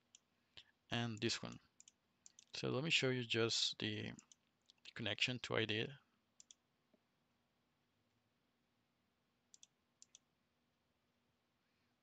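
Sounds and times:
computer mouse clicks: 0:01.2 - 0:02.6, 0:06.4 - 0:06.6, 0:09.5 - 0:10.3.

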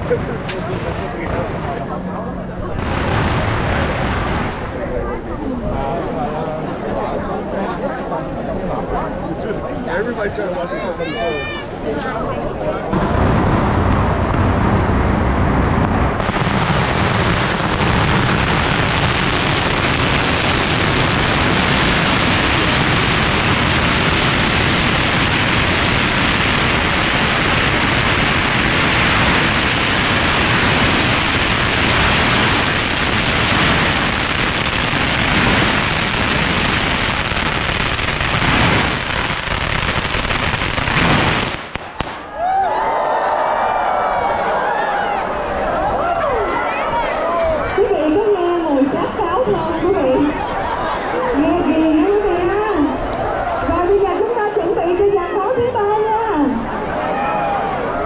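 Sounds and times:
firecrackers crackling: 0:00.0 - 0:05.0, 0:12.8 - 0:42.5.

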